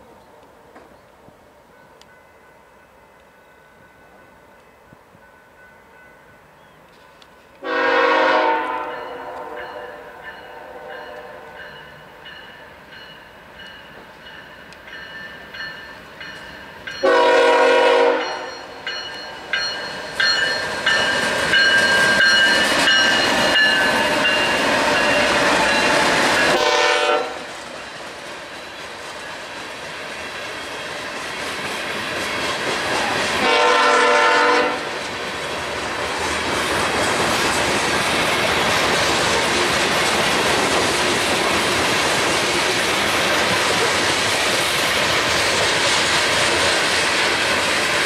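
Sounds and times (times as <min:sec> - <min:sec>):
locomotive air horn: 0:07.6 - 0:11.6, 0:17.0 - 0:18.5, 0:26.5 - 0:27.5, 0:33.4 - 0:35.0.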